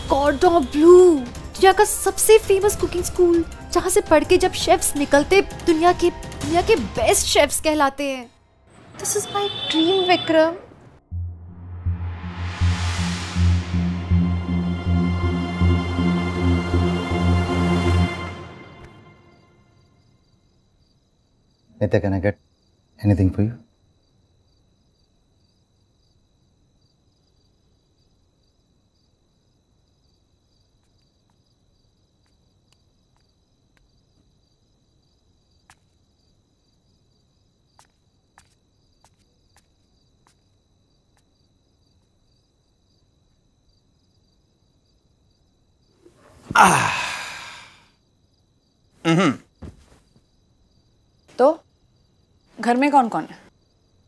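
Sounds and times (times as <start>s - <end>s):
crickets chirping: 0.0s - 10.6s, 17.4s - 54.0s
person sighing: 46.4s - 48.0s, 49.0s - 49.5s.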